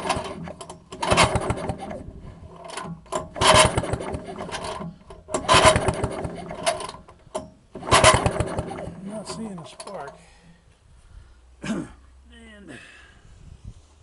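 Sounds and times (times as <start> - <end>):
recoil starter rope pulls: 0.0 - 10.5.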